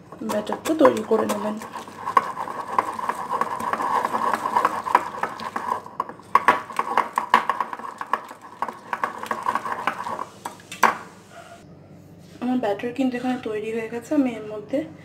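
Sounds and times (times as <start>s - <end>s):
whisk scraping glass bowl: 0.0s - 10.8s.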